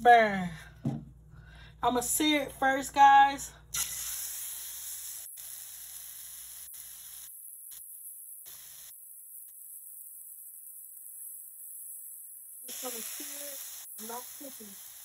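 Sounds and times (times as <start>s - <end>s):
meat sizzling in a pan: 3.8s - 15.0s.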